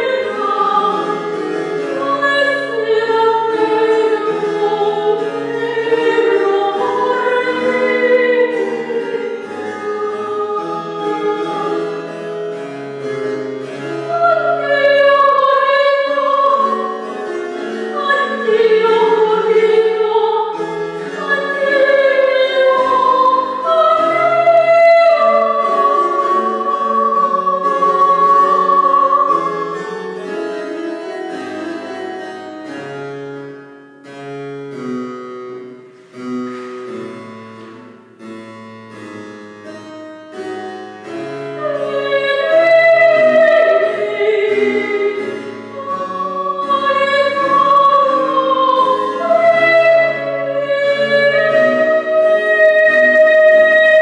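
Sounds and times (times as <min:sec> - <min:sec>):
woman singing operatic aria: 0:00.0 - 0:12.2, 0:13.7 - 0:30.4, 0:41.6 - 0:54.0
harpsichord: 0:00.0 - 0:54.0.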